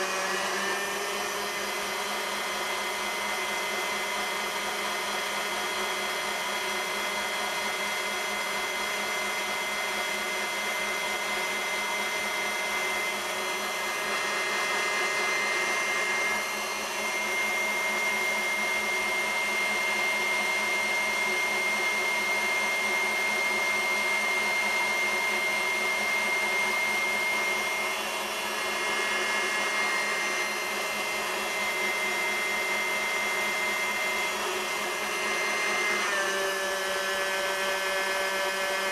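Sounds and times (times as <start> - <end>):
stand mixer motor whine: 0.0 - 38.9.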